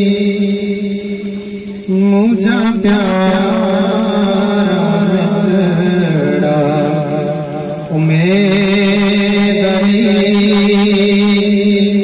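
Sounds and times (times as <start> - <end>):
person chanting a slow melody: 0.0 - 12.0.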